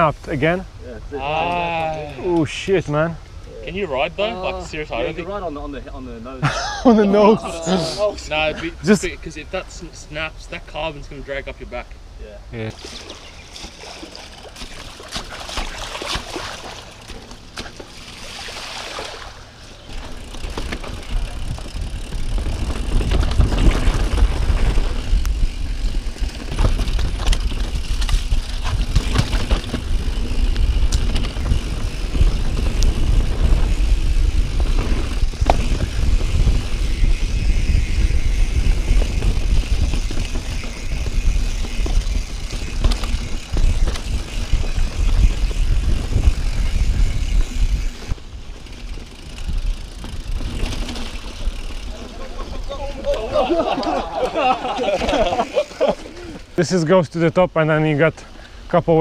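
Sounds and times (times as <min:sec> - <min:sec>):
bike tyres crunching on dirt trail: 0:12.7 - 0:57.1
bike knocks and rattles: 0:19.8 - 0:55.7.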